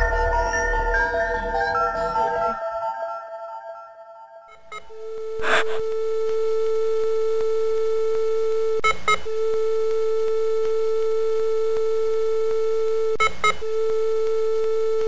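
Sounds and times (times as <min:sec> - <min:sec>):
electronic beep tone: 0:04.5 - 0:05.8.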